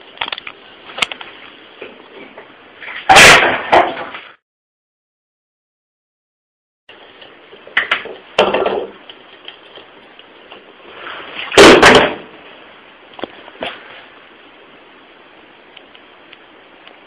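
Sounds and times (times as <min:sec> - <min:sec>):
sharp knocks and thuds: 0:11.6 - 0:12.3.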